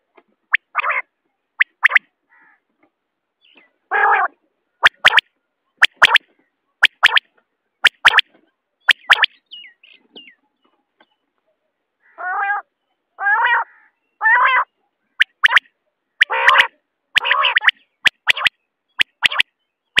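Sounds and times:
quail calling: 0:00.5 - 0:02.6, 0:03.9 - 0:05.2, 0:05.8 - 0:06.2, 0:08.9 - 0:09.4, 0:12.0 - 0:20.0.

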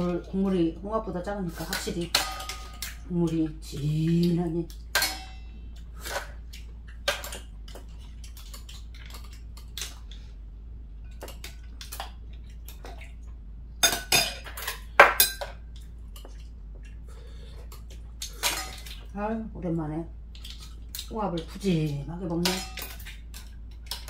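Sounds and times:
utensils clinking against bowls: 0:00.0 - 0:06.4, 0:13.8 - 0:15.6, 0:17.7 - 0:19.1, 0:20.4 - 0:24.0.

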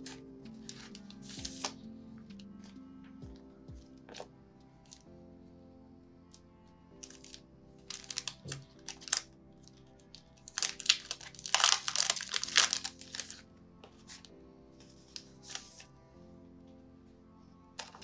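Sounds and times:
soft lofi music: 0:00.0 - 0:18.0
plastic packaging crinkling: 0:07.0 - 0:09.2, 0:10.1 - 0:13.4.

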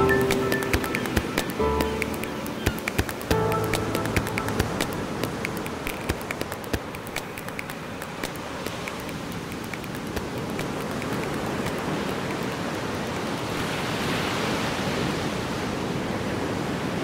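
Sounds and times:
small crackling ticks: 0:00.0 - 0:13.4.

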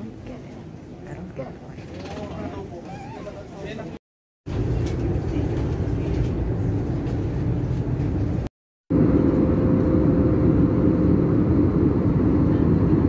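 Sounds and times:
airliner cabin drone: 0:04.5 - 0:13.0
low rumble: 0:04.5 - 0:13.0.

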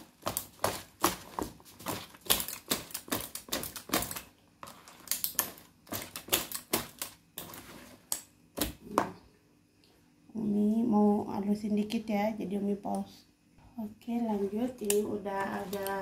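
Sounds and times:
whisk beating batter in bowl: 0:14.3 - 0:16.0.

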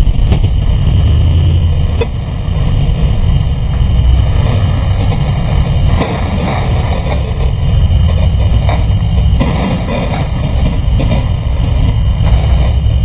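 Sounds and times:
race car engine drone: 0:00.0 - 0:13.0.

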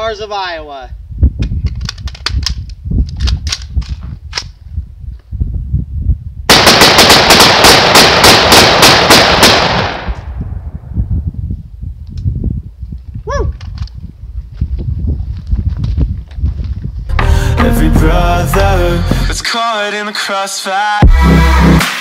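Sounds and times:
rifle gunfire: 0:06.5 - 0:10.3.

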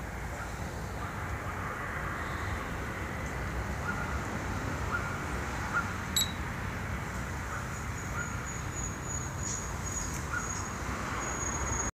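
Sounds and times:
short electronic beep: 0:06.2 - 0:06.4.

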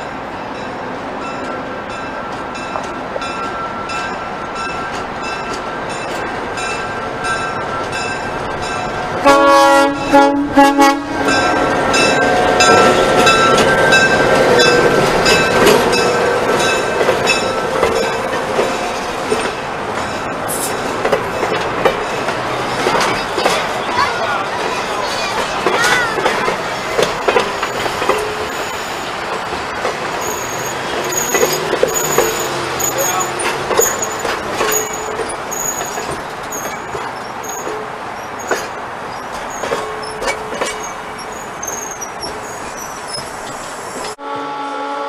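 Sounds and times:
passenger cars rolling past: 0:00.0 - 0:44.2
diesel locomotive engine: 0:00.0 - 0:45.0
locomotive horn blasts: 0:09.2 - 0:11.6, 0:44.2 - 0:45.0
wheels clicking over rail joints: 0:11.3 - 0:44.2.

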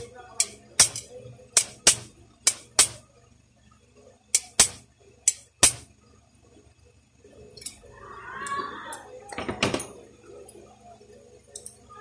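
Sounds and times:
sharp metallic clicks: 0:00.0 - 0:03.0, 0:04.3 - 0:05.9.

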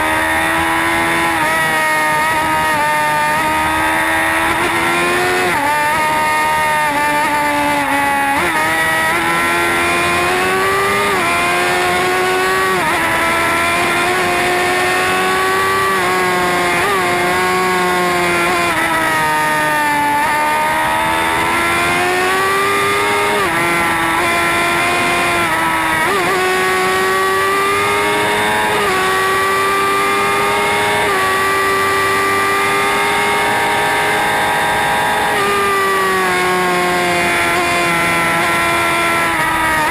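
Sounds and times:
motorcycle engine revving: 0:00.0 - 0:39.9.

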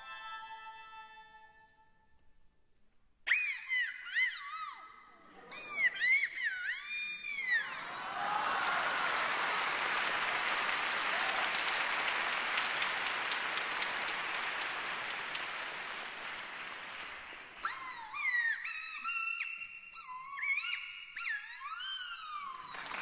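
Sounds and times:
audience applauding: 0:07.7 - 0:18.2, 0:22.4 - 0:23.0.

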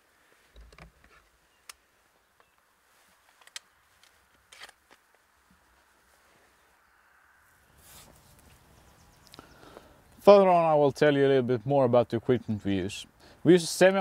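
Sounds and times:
faint handling clicks and knocks: 0:00.5 - 0:05.7.

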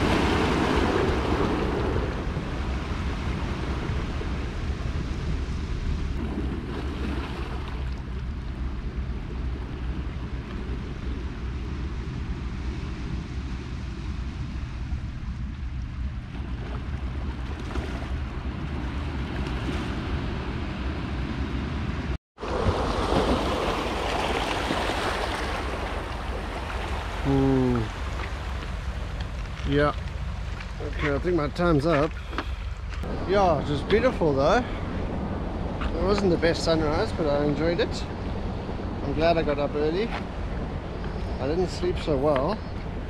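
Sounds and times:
waves washing on rocky shore: 0:00.0 - 0:07.9, 0:22.4 - 0:30.8
wind buffeting microphone: 0:00.0 - 0:43.0.

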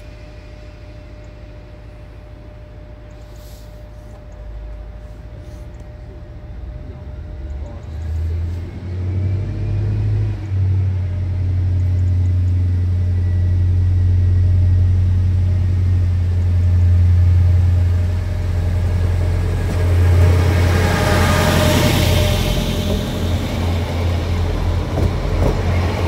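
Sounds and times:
diesel train rumble: 0:00.0 - 0:26.0
train rushing hiss: 0:03.2 - 0:04.1.

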